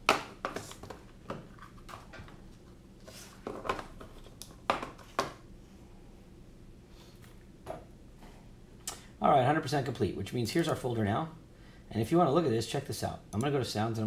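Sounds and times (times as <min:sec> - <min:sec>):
small objects knocking on desk: 0:03.4 - 0:05.4.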